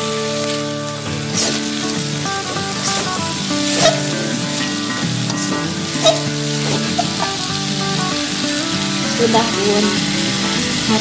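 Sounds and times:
background music with held notes: 0.0s - 11.0s
food sizzling: 0.0s - 11.0s
spatula scraping in wok: 1.3s - 7.4s
spatula clacking on pan: 2.8s - 4.6s, 5.2s - 7.4s.

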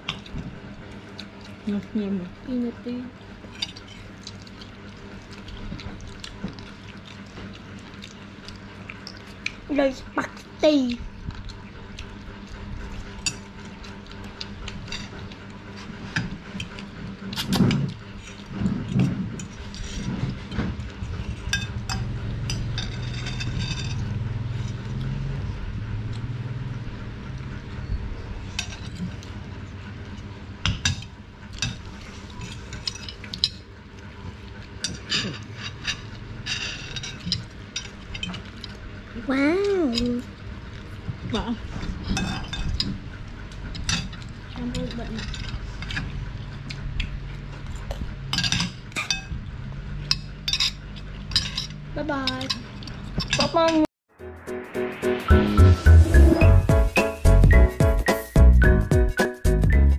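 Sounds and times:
low steady hum: 0.0s - 53.9s
cutlery clinking on ceramic bowls: 21.5s - 24.2s.

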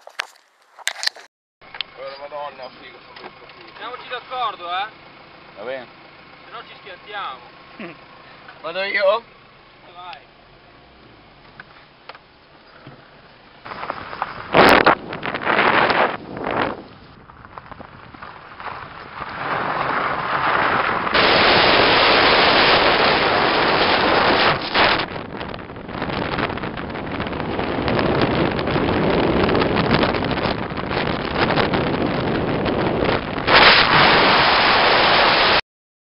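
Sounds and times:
car driving on gravel road: 0.0s - 35.5s
wind buffeting microphone: 13.6s - 34.7s.

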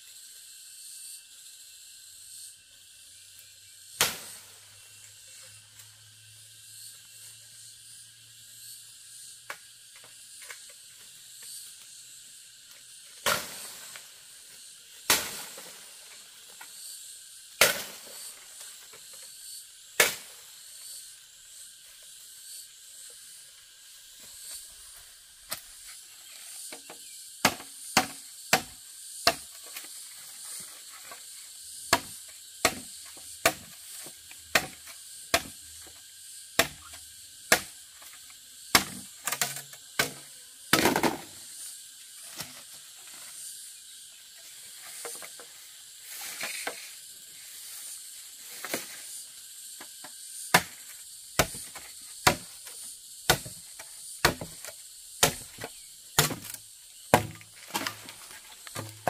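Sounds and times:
steady high hiss: 0.0s - 59.0s
machete chopping bamboo: 4.0s - 4.4s, 13.2s - 13.9s, 15.0s - 15.7s, 17.6s - 18.3s, 20.0s - 20.3s, 26.7s - 29.9s, 31.9s - 35.9s, 36.5s - 41.4s, 50.5s - 59.0s.

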